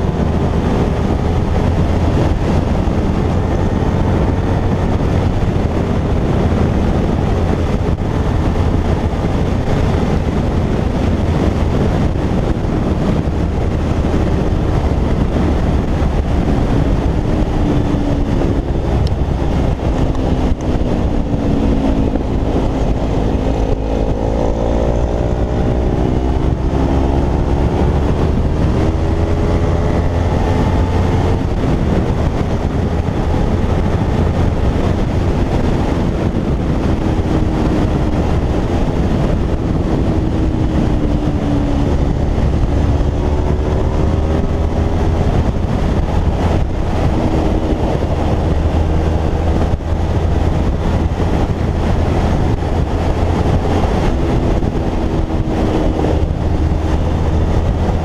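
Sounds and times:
motorcycle engine: 0.0s - 58.0s
wind rush over microphone: 0.0s - 58.0s.

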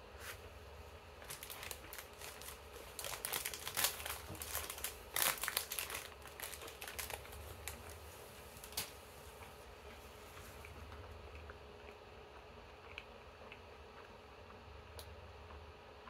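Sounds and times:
plastic wrapper crinkling: 1.2s - 9.0s.

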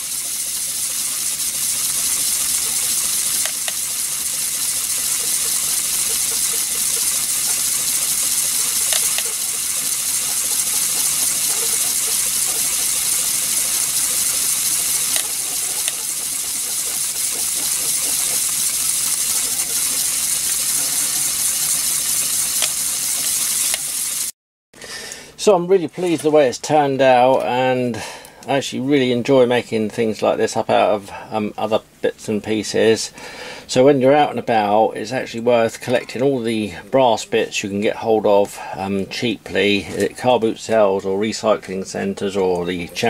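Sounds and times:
steam hissing from jets: 0.0s - 24.3s.

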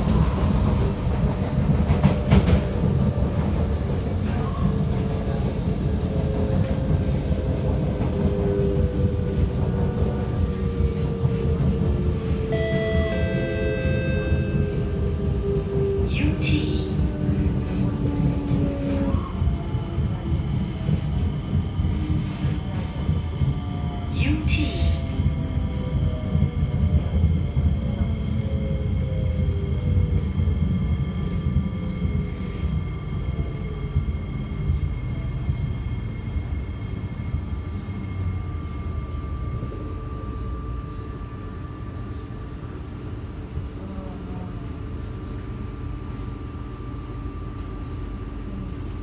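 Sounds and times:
train rumble: 0.0s - 49.0s.

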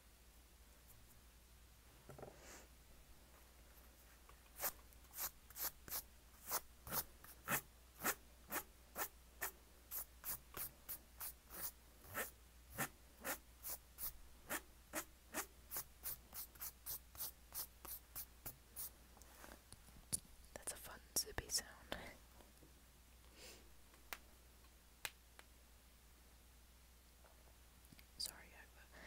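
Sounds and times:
pencil scratching on paper: 4.6s - 18.9s.

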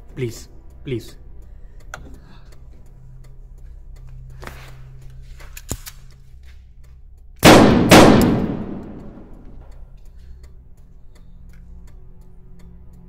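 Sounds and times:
sharp click: 5.4s - 6.3s, 7.4s - 9.8s
pistol shots echoing: 7.4s - 9.4s.

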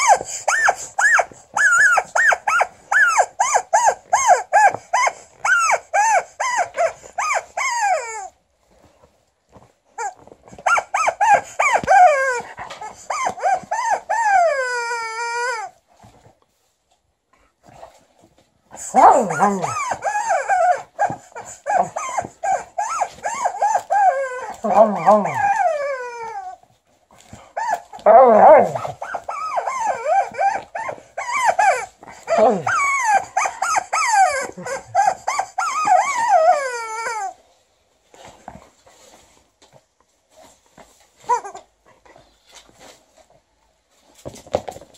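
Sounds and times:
rubber chicken toy squeals: 0.0s - 8.2s, 32.7s - 37.3s.

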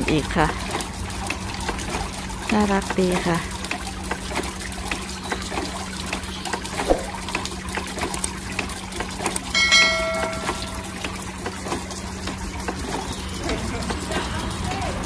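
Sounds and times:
fountain water trickling and splashing: 0.0s - 15.0s
water-wheel dripping: 0.0s - 15.0s
short ringing chime: 9.6s - 11.1s.

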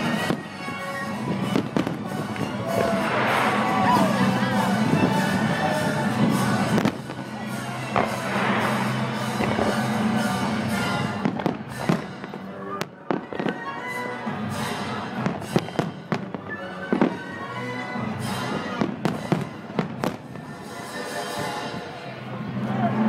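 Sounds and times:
fireworks bangs and cracks: 0.0s - 21.9s
music: 0.0s - 23.0s.

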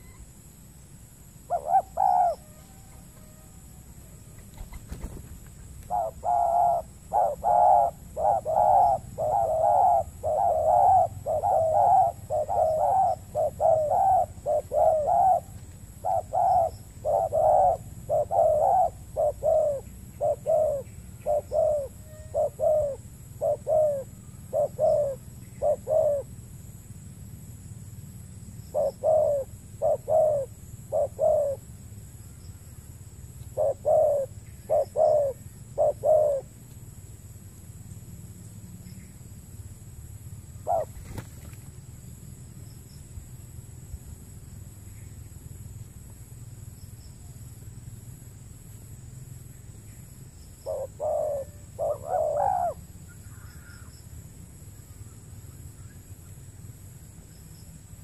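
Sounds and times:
doves cooing: 1.5s - 26.4s, 28.7s - 31.7s, 33.5s - 36.6s, 40.6s - 41.5s, 50.6s - 53.9s.

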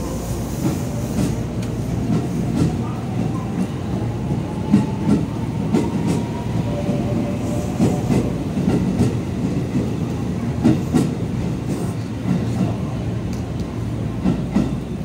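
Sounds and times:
train rumble: 0.0s - 15.0s.

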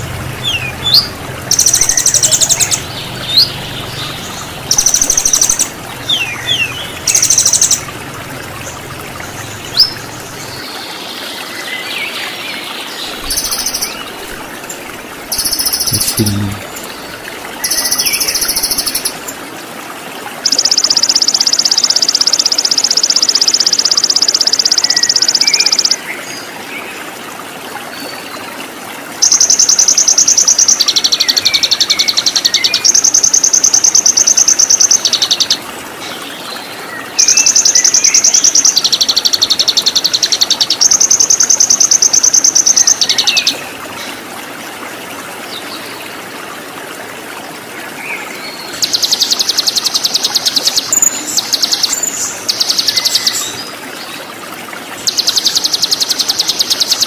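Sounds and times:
songbird trilling: 0.0s - 7.9s, 9.5s - 10.1s, 13.2s - 14.0s, 15.3s - 16.8s, 17.6s - 19.2s, 20.5s - 26.0s, 29.2s - 35.6s, 37.2s - 43.6s
waterfall rushing: 0.0s - 21.1s.

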